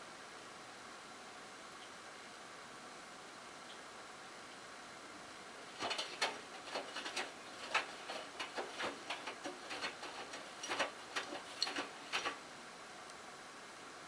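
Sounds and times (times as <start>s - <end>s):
laundry sloshing in washer drum: 5.6s - 12.4s.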